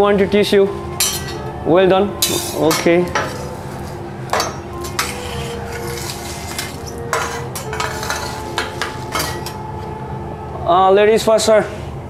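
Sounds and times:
steady hum: 0.0s - 12.0s
metal spatula scraping on griddle: 2.2s - 9.6s.

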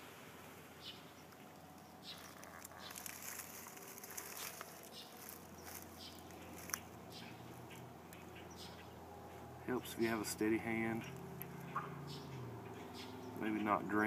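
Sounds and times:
bird chirps: 0.8s - 13.9s
soft crackly rustling: 1.2s - 8.3s.

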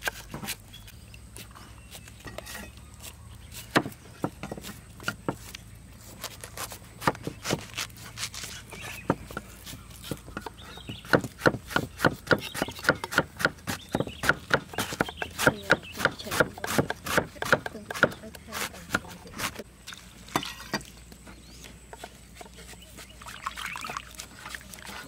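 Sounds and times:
cleaver chopping on wooden board: 1.4s - 5.6s, 6.2s - 19.6s.

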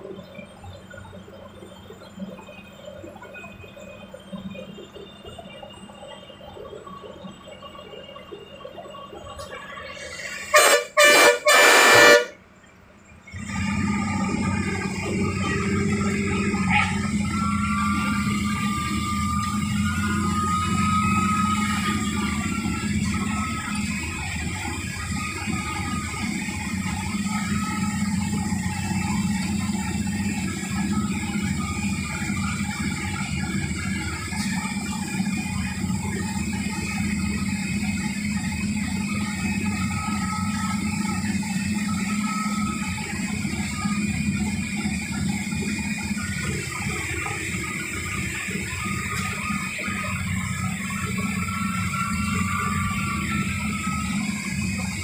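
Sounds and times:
bus engine hum: 0.0s - 55.0s
faint whining tones: 0.0s - 55.0s
tyres hissing on wet road: 9.9s - 12.3s.

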